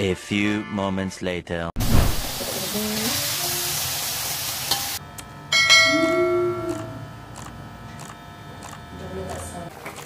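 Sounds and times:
hot wok sizzling: 1.8s - 6.5s
bright bell chime: 5.5s - 7.0s.

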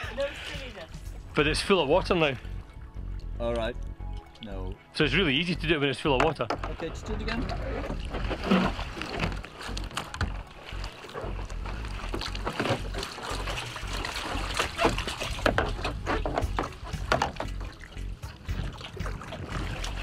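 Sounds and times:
water splashing and sloshing: 0.0s - 20.0s
kayak knocks: 6.0s - 20.0s.

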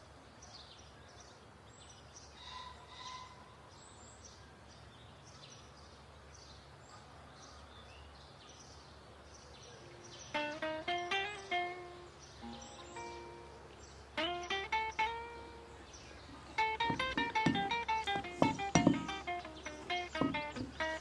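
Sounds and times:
birds chirping: 7.4s - 21.0s.

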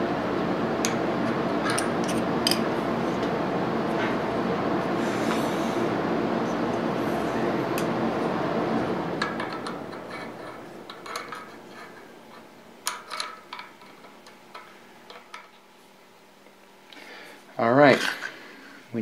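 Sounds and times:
steady rushing noise: 0.0s - 11.7s.

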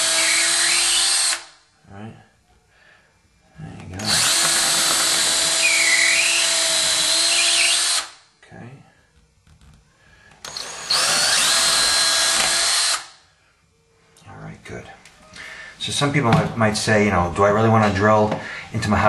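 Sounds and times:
cordless drill boring into wood: 0.0s - 1.5s, 4.0s - 8.2s, 10.4s - 13.1s.

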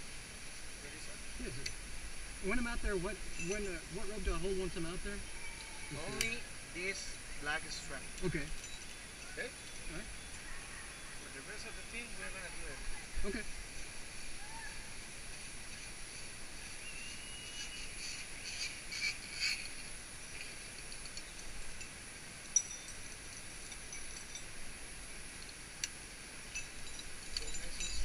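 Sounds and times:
high-pitched insect drone: 0.6s - 28.0s.

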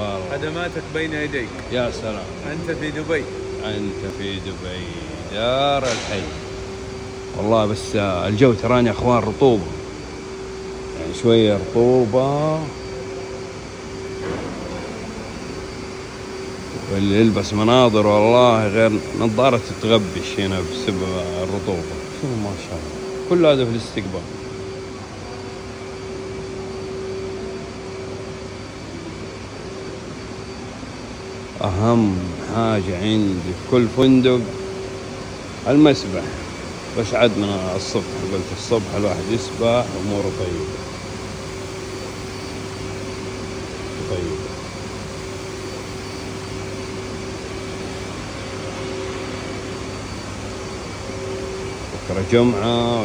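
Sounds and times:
air conditioning hum: 0.0s - 53.0s.

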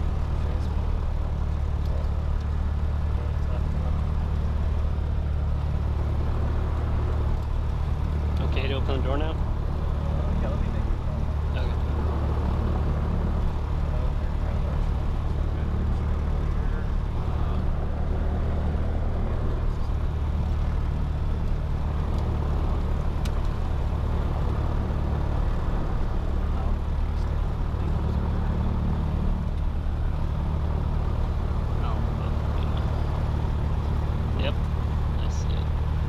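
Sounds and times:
aircraft piston engine droning: 0.0s - 36.0s.

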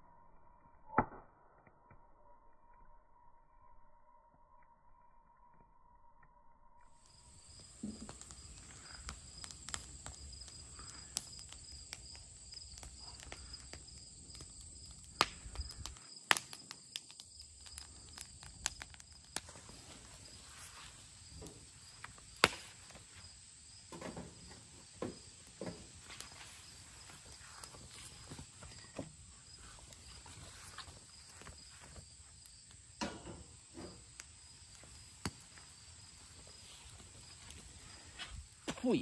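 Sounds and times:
insect drone: 1.6s - 39.0s
wood fire crackling and popping: 7.0s - 39.0s
footsteps on grass: 25.8s - 28.9s, 29.6s - 32.1s.

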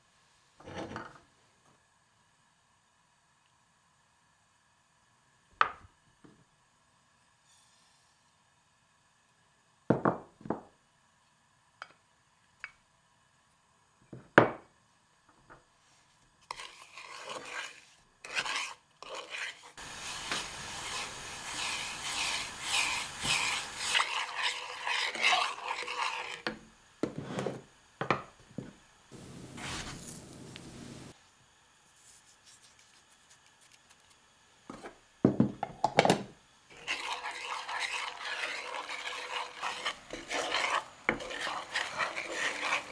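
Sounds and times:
wooden spatula scraping frying pan: 16.4s - 27.6s, 29.5s - 30.2s, 36.7s - 42.9s.

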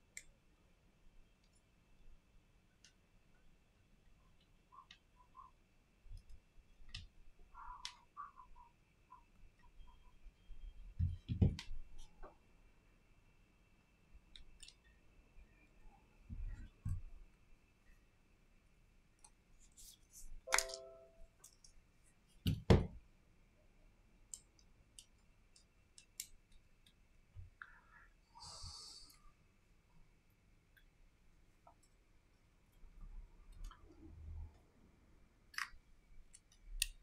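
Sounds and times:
small clicks and taps of parts: 14.2s - 15.0s, 24.2s - 27.7s, 35.5s - 37.0s.

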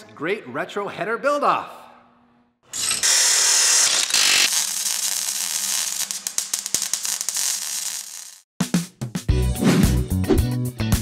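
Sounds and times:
cut-off wheel grinding metal: 2.7s - 6.9s.

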